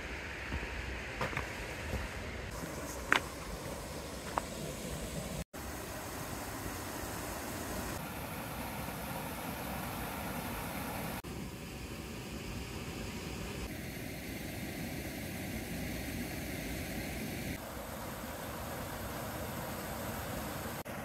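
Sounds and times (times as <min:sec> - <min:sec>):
waterfall rushing into pool: 0:04.2 - 0:11.2.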